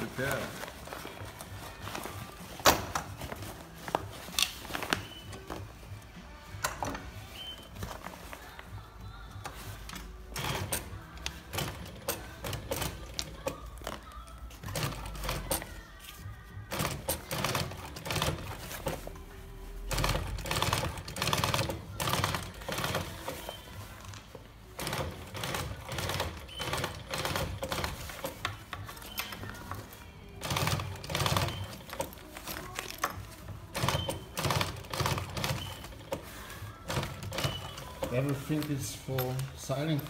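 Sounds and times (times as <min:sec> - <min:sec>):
sewing machine clattering: 0:09.6 - 0:15.8, 0:16.7 - 0:24.0, 0:24.7 - 0:40.0.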